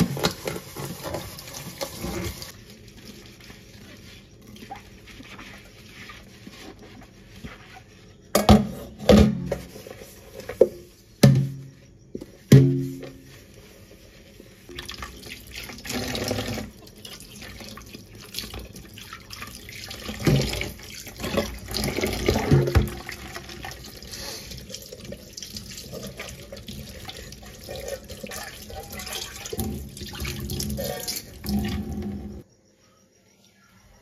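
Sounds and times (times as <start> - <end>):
tap water splashing into sink: 20.0 - 23.4.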